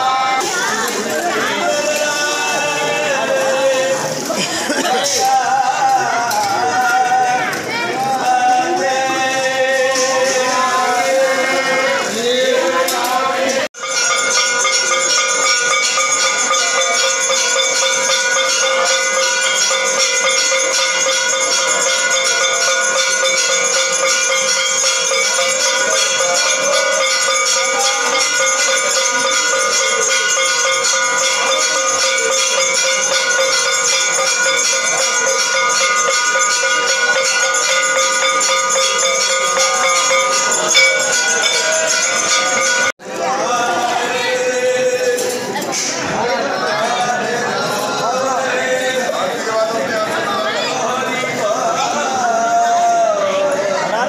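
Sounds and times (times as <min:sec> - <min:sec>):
temple bells ringing: 0:13.7 - 0:43.2.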